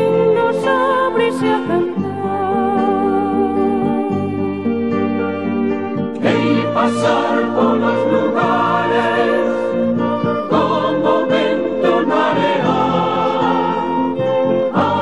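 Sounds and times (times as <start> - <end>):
instrumental accompaniment: 0.0 - 15.0
choir singing: 6.1 - 15.0.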